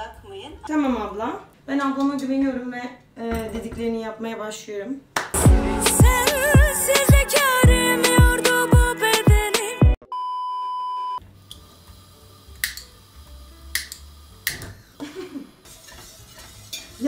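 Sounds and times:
song with thumping beat: 5.4 - 10.0.

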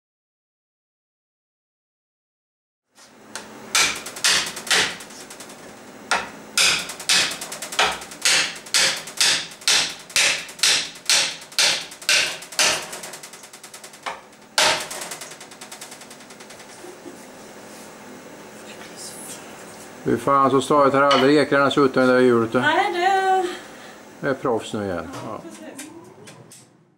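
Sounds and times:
hammer knocking wooden spoke: 6.1 - 12.8.

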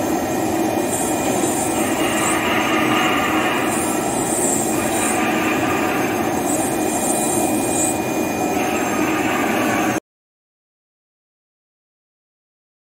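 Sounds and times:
thin high whine: 0.0 - 10.0
router bit grinding through board: 0.8 - 9.7.

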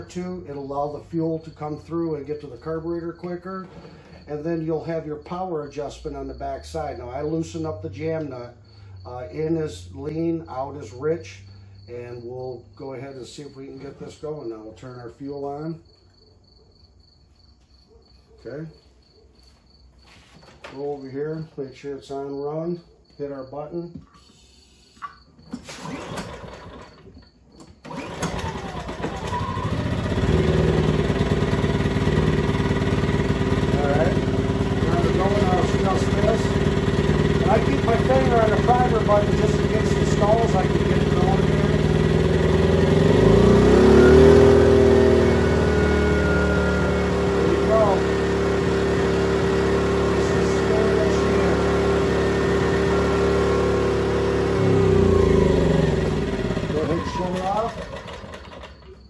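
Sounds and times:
generator starter cranking: 25.2 - 59.0
generator engine running: 25.6 - 59.0.

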